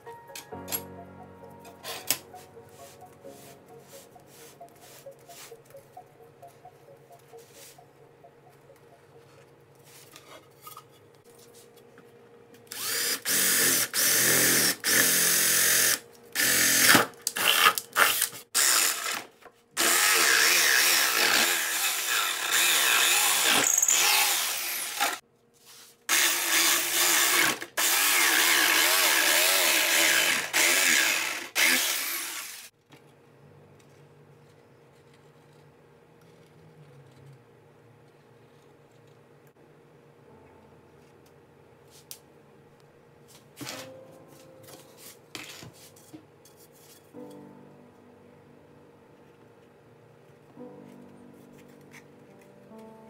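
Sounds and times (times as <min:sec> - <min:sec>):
jigsaw cutting plywood: 0:12.8 - 0:25.2, 0:26.1 - 0:32.7.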